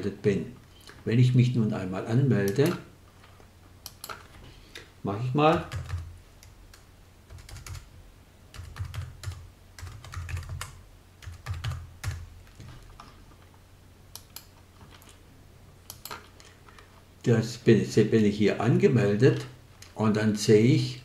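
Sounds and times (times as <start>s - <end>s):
typing on computer keyboard: 5.5s - 6.1s, 6.7s - 7.9s, 8.6s - 13.0s.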